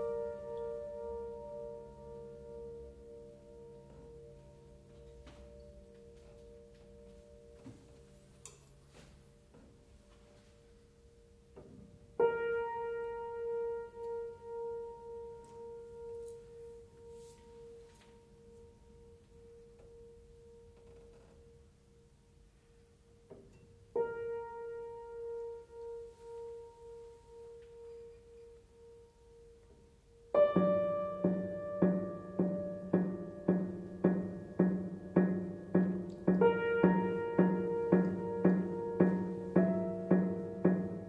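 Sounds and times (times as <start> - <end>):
piano note ringing: 0.0 - 10.0, 23.1 - 41.0.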